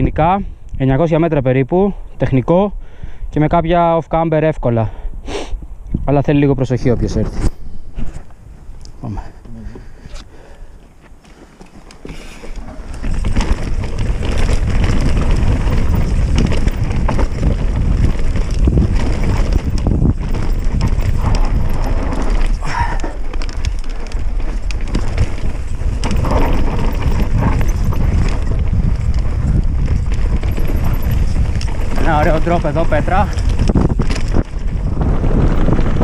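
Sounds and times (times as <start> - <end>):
wind noise on microphone: 0.0 - 10.6, 12.0 - 36.0
tyres on loose dirt: 8.0 - 36.0
bike knocks and rattles: 10.8 - 36.0.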